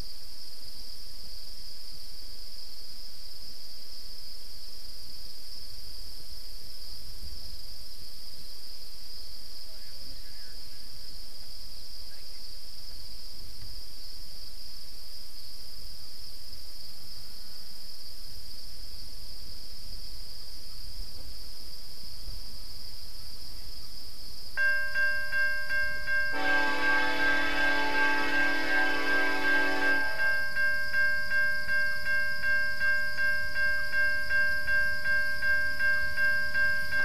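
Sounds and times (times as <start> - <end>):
insects chorus: 0.0 - 37.0
level crossing bell ringing: 24.6 - 37.0
train horn: 26.3 - 30.8.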